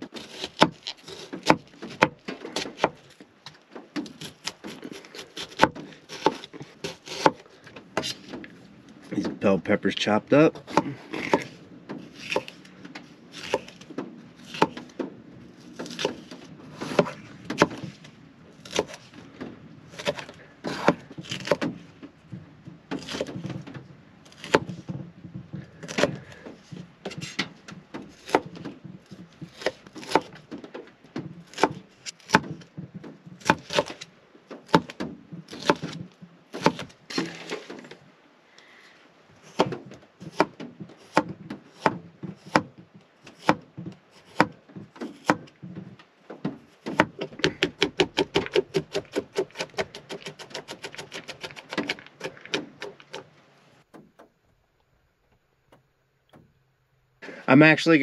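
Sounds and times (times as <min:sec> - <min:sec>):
knife chopping on cutting board: 0:05.4 - 0:07.4, 0:10.6 - 0:12.5, 0:13.4 - 0:13.8, 0:19.9 - 0:21.7, 0:31.5 - 0:32.5, 0:36.6 - 0:37.3, 0:39.5 - 0:42.7, 0:43.4 - 0:45.5, 0:46.9 - 0:53.2.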